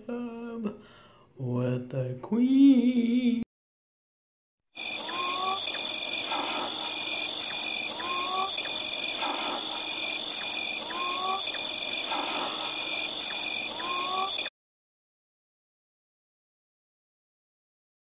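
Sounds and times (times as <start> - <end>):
insects chirring: 4.8 - 14.5.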